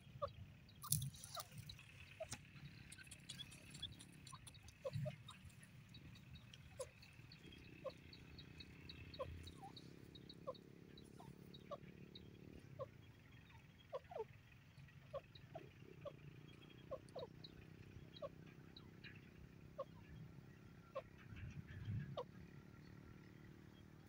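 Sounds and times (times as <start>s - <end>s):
bird giving soft low calls: 0.0s - 14.4s
faint high ticks: 0.8s - 9.6s.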